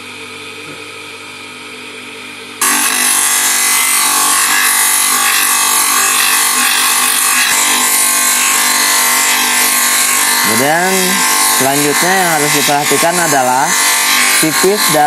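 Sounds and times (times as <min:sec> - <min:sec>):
motor hum: 0:00.0 - 0:15.0
sanding disc grinding wood: 0:02.6 - 0:15.0.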